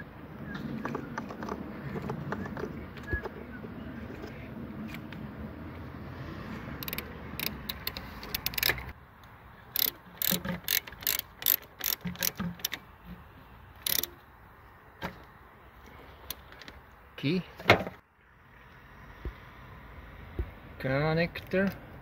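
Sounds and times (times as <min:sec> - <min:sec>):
socket ratchet clicking: 0:06.8 - 0:09.0, 0:09.7 - 0:12.8, 0:13.8 - 0:14.1.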